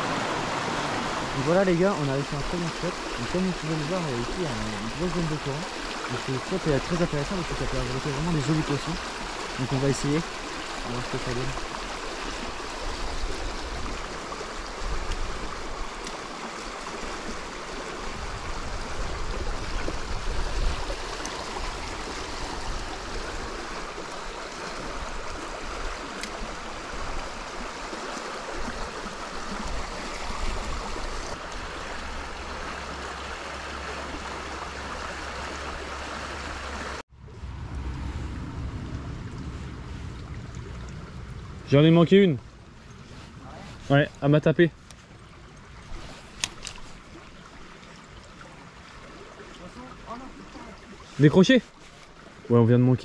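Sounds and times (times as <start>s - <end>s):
stream water rushing: 0.0s - 53.0s.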